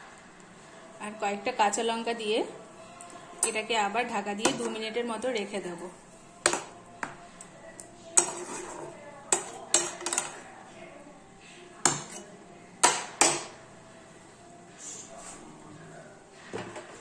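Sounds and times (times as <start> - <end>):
spatula knocking frying pan: 9.4 - 10.3, 11.9 - 12.2, 12.8 - 13.6.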